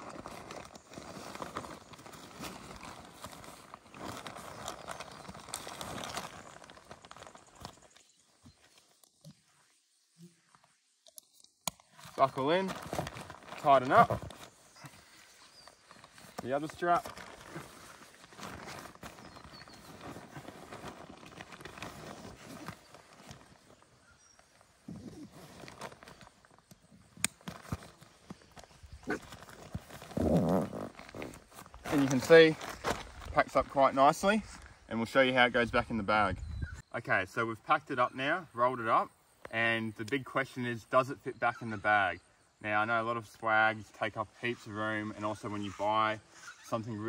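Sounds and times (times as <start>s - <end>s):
nylon canvas rustling: 0.0s - 9.0s, 11.9s - 34.8s.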